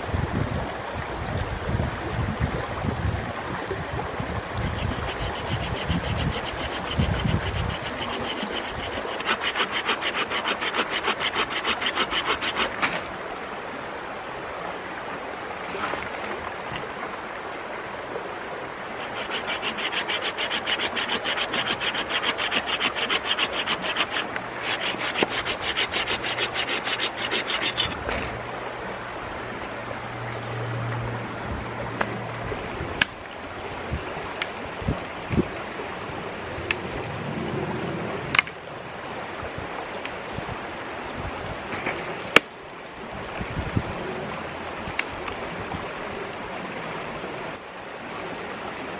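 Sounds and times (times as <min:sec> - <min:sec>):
creek rushing: 0:00.0 - 0:48.9
saw cutting through branch: 0:04.6 - 0:12.9, 0:19.0 - 0:28.4.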